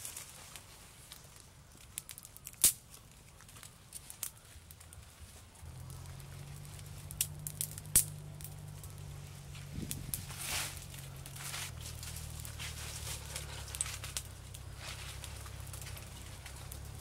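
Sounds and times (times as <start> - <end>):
campfire crackling: 0.0 - 17.0
sharp fire pops: 1.8 - 4.9, 5.7 - 9.1, 9.7 - 17.0.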